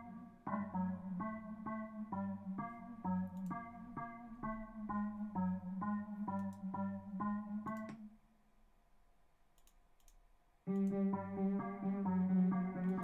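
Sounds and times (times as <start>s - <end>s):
synthesized melody over bass line: 0.0s - 8.0s, 10.7s - 13.0s
mouse clicks: 9.6s - 11.0s.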